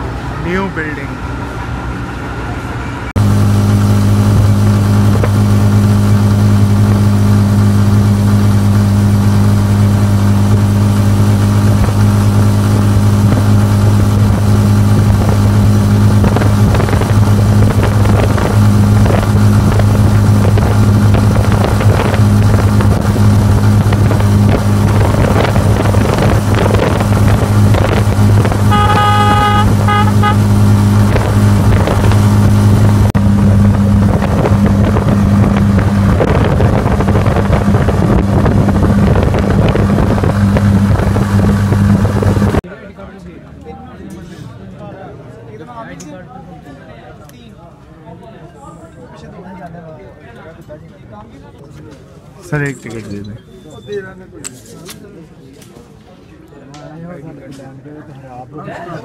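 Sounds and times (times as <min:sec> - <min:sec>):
motorcycle rickshaw engine running: 0:01.5 - 0:42.6
horn beeps: 0:28.6 - 0:31.0.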